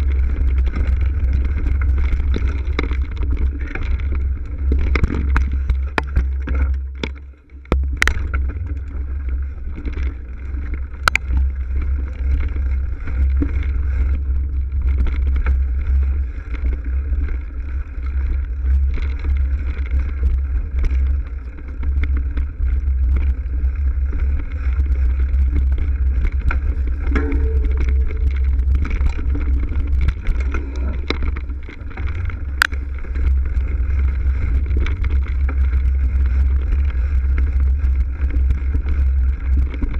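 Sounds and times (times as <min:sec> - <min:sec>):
bike frame vibration: 0:00.0 - 0:39.9
wind buffeting microphone: 0:00.0 - 0:39.9
sharp knocks of bike on bumps: 0:04.7 - 0:09.0.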